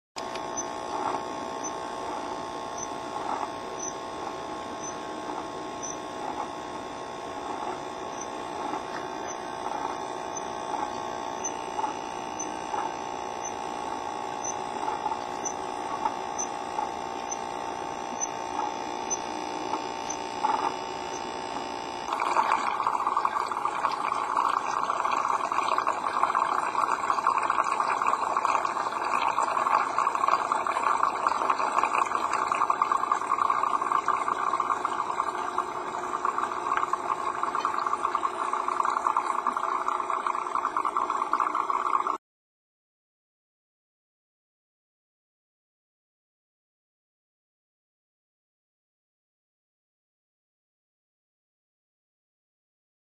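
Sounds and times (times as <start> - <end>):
rough buzzing hum: 0.2 - 42.2
small electric motor humming: 0.2 - 42.2.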